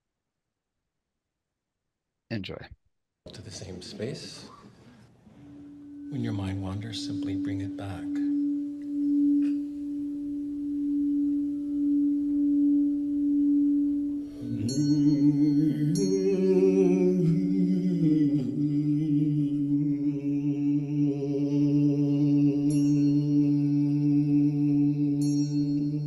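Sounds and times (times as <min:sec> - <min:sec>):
singing bowl ringing: 0:05.5 - 0:18.6, 0:21.6 - 0:26.0
high ringing tones: 0:05.5 - 0:18.8, 0:21.6 - 0:26.0.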